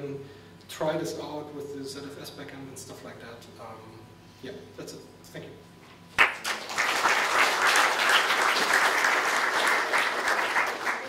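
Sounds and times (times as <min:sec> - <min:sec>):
audience applauding: 0:06.2 - 0:11.0.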